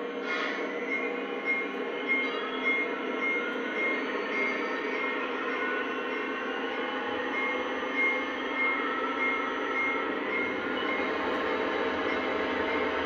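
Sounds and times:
model locomotive engine hum: 0:00.0 - 0:13.0
high bell-like chime: 0:00.9 - 0:06.3.

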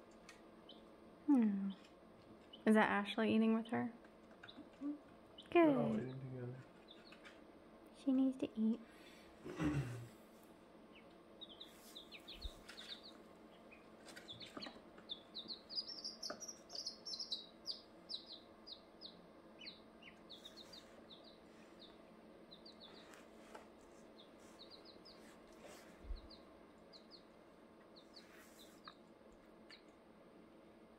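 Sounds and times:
ducklings and chicks peeping: 0:00.6 - 0:00.9, 0:06.8 - 0:07.3, 0:10.9 - 0:23.3, 0:24.1 - 0:29.1, 0:29.7 - 0:30.0.

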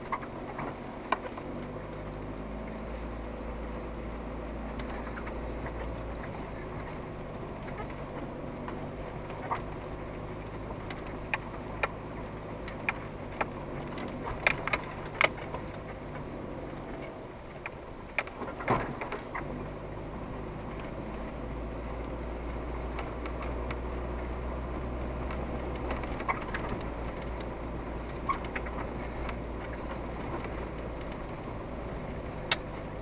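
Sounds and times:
car engine running: 0:00.0 - 0:33.0
vehicle knocks and rattles: 0:17.0 - 0:19.6.

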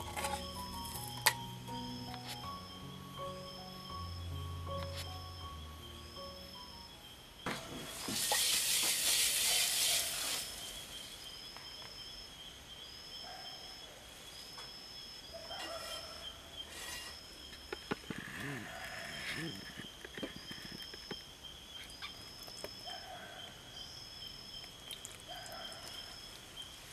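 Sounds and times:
salt pouring into flour: 0:08.0 - 0:10.8.

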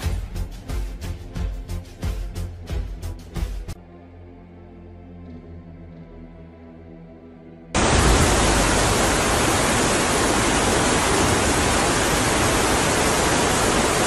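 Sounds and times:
floodwater running down street: 0:07.8 - 0:14.0
torrential rain: 0:07.8 - 0:14.0.

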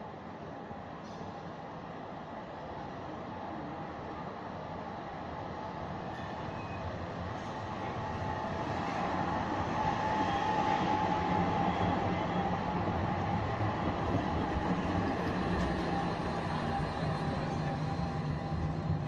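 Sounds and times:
tram wheels rumbling on rails: 0:06.0 - 0:19.0.

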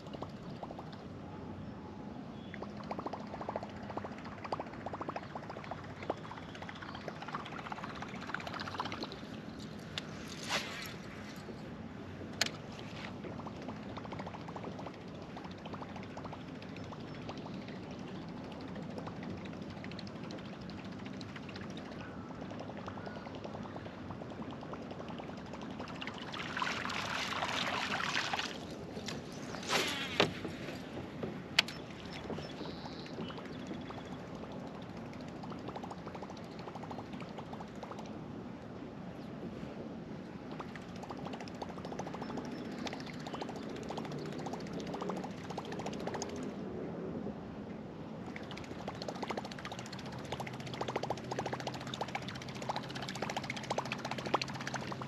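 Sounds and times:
water lapping against hull: 0:12.6 - 0:38.1.

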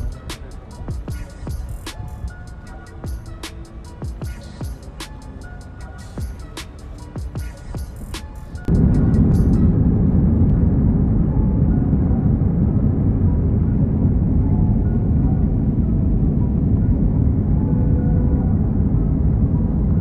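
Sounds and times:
jet engines and airflow rumble: 0:00.0 - 0:20.0
music: 0:00.0 - 0:20.0.

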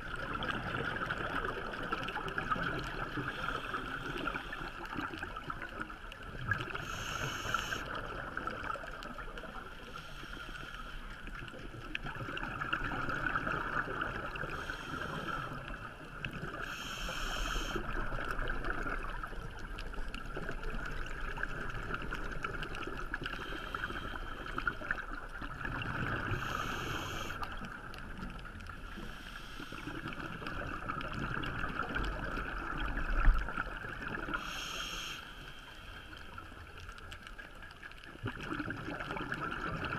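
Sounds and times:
steady underwater hiss: 0:00.0 - 0:39.9
scuba regulator breathing: 0:03.2 - 0:04.8, 0:06.7 - 0:08.0, 0:09.8 - 0:11.3, 0:14.4 - 0:15.8, 0:16.5 - 0:18.0, 0:23.2 - 0:25.0, 0:26.2 - 0:27.5, 0:28.9 - 0:30.3, 0:34.3 - 0:36.4
exhaled bubbles bursting: 0:38.2 - 0:39.9.

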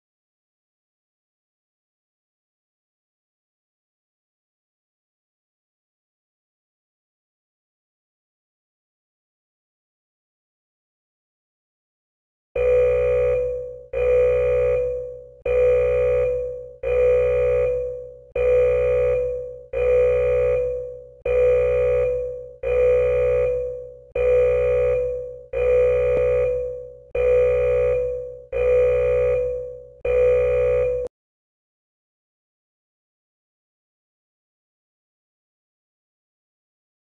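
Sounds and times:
electronic warning tone: 0:12.6 - 0:31.1.

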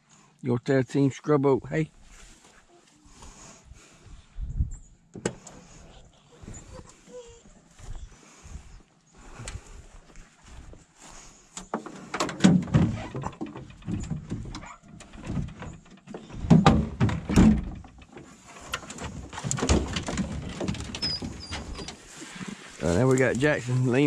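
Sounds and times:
metal box knocking and rattling: 0:18.9 - 0:21.1.

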